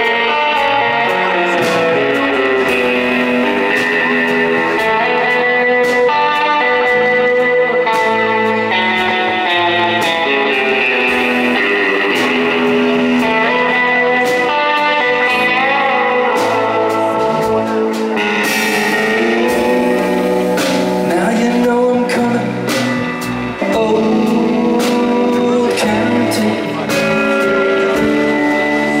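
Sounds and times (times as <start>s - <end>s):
bass: 0.0s - 29.0s
drums: 0.0s - 29.0s
electric guitar: 0.0s - 29.0s
man singing: 20.6s - 29.0s.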